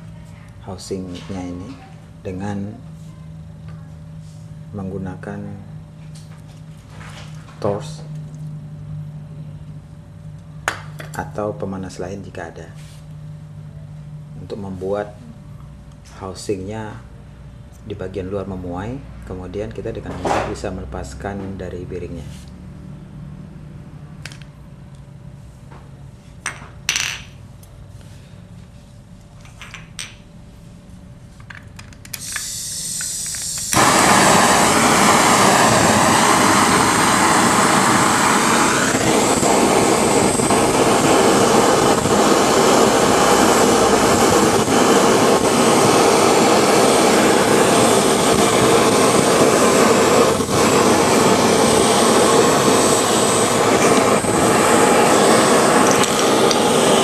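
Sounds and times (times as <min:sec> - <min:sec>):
gas torch hissing: 0:32.0 - 0:57.0.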